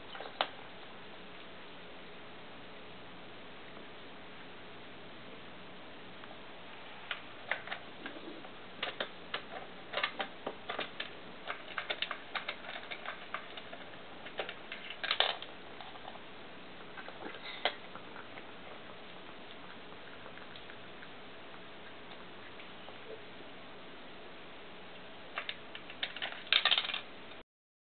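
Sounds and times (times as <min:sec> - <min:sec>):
cat crunching dry kibble: 0:07.0 - 0:23.0, 0:25.3 - 0:27.1
kibble clicking against plastic: 0:08.8 - 0:16.2.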